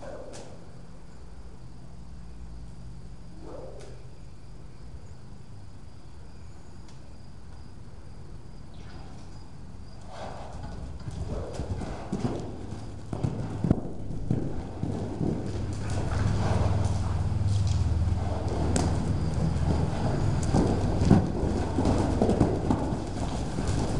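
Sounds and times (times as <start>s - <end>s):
horse hoofbeats on dirt: 9.9s - 23.9s.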